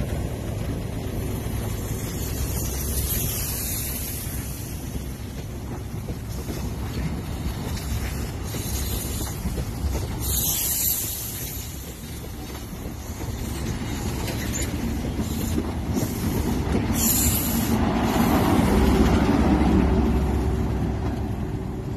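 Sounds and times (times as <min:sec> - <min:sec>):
train wheels rumbling on track: 0:00.0 - 0:21.9
short hissing bursts: 0:08.2 - 0:09.6, 0:10.2 - 0:12.2.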